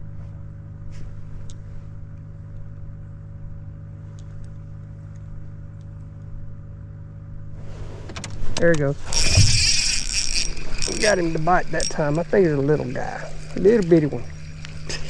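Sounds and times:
motor humming: 7.3s - 15.0s.

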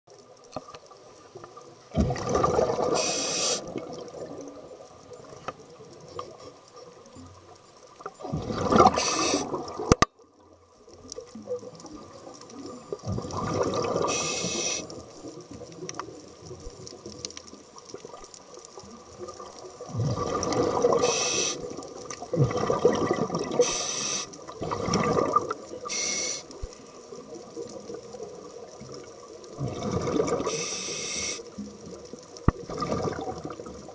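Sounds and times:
rushing exhaled bubbles: 1.9s - 4.7s, 8.2s - 10.0s, 13.0s - 15.8s, 19.1s - 23.8s, 24.4s - 26.0s, 27.3s - 30.6s, 32.4s - 33.9s
diver breathing through regulator: 2.9s - 3.7s, 8.8s - 9.6s, 14.0s - 14.9s, 20.8s - 21.7s, 23.6s - 24.3s, 25.9s - 26.5s, 30.4s - 31.4s.

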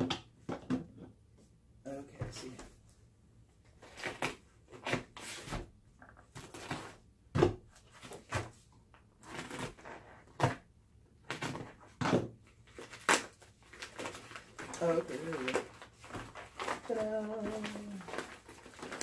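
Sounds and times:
plastic crinkling: 12.6s - 19.0s.

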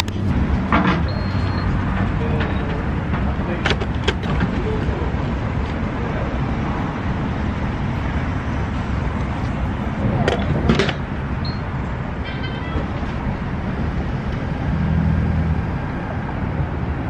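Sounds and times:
traffic rumble: 0.0s - 17.0s
short high beeps: 1.0s - 1.7s, 11.4s - 11.7s.

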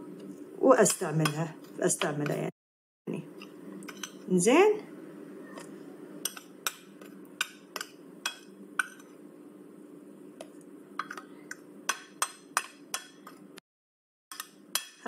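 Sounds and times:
steady low hum: 3.1s - 13.6s.

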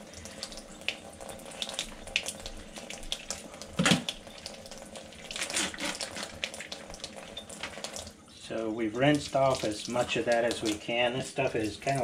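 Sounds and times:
small splashes: 9.0s - 12.0s.

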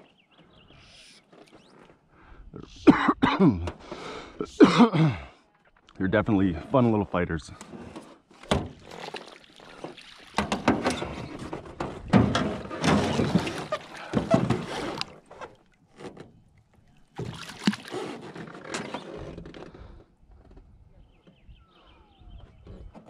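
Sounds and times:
water splashing and sloshing: 7.6s - 19.7s.

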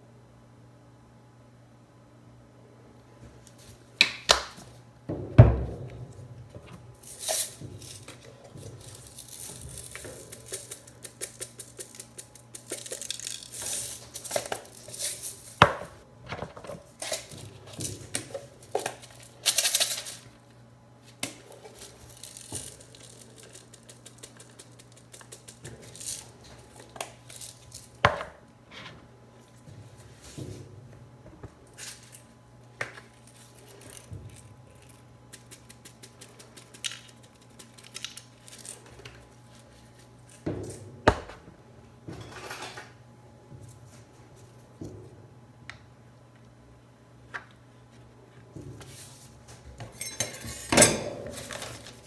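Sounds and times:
crinkling and rustling: 5.9s - 28.0s, 47.3s - 52.0s
metal tools clinking on steel plate: 49.9s - 51.8s.

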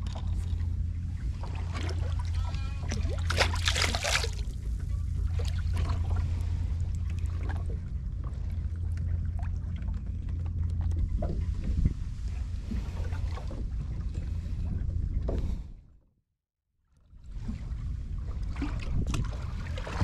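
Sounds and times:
outboard motor droning: 0.0s - 16.2s, 17.0s - 20.0s
water splashing: 1.3s - 4.6s.

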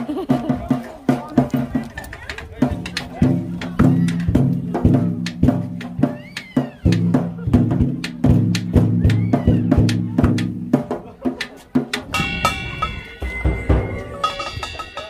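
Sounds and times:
steady high tones: 12.1s - 15.0s.

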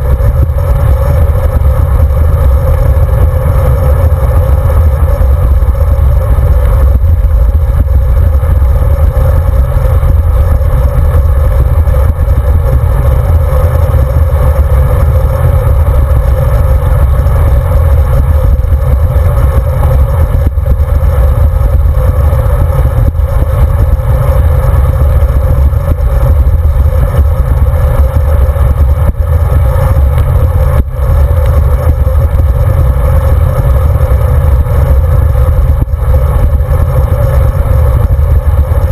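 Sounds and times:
bike tyres rolling on asphalt: 0.0s - 38.9s.

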